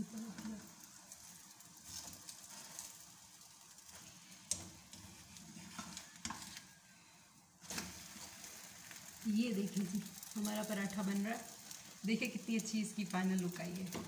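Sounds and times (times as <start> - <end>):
faint sizzling in a pan: 0.0 - 14.0
plastic spatula scraping and clicking: 3.9 - 6.7.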